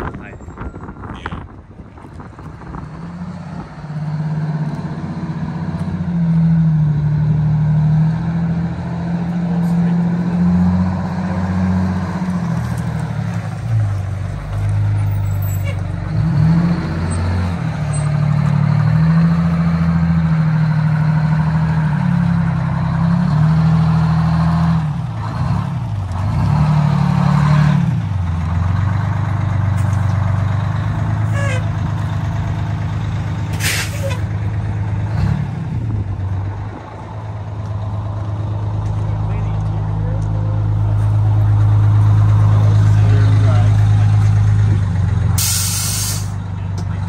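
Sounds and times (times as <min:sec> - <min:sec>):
truck engine revving: 0:02.1 - 0:47.0
air hiss: 0:45.4 - 0:46.4.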